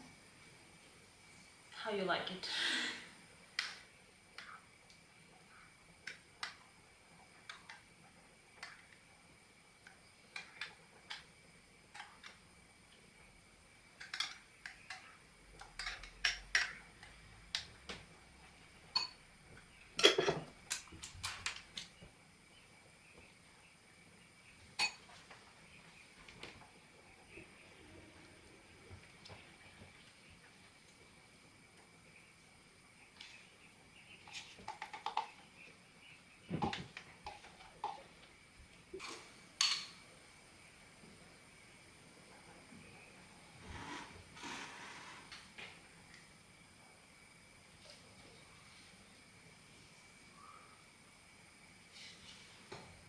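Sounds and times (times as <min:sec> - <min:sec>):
dishes clattering: 0:14.0 - 0:16.8, 0:18.9 - 0:19.2, 0:20.0 - 0:21.5, 0:24.8 - 0:25.2
utensils tapping against dishes: 0:14.0 - 0:17.2, 0:18.9 - 0:19.2, 0:20.0 - 0:21.6, 0:24.8 - 0:25.2
dishes and utensils knocking: 0:20.0 - 0:20.5, 0:24.8 - 0:25.1.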